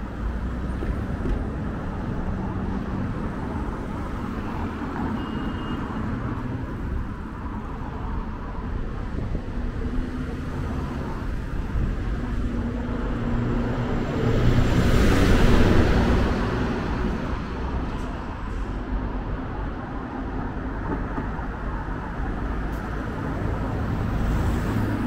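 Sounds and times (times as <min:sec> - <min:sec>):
road vehicles passing: 0:00.0 - 0:25.0.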